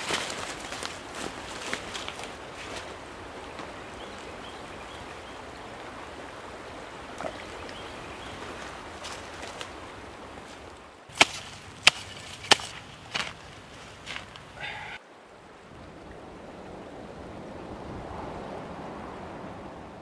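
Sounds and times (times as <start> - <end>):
steady outdoor hiss: 0.0 - 20.0
hand tool chopping into dirt: 11.1 - 13.4.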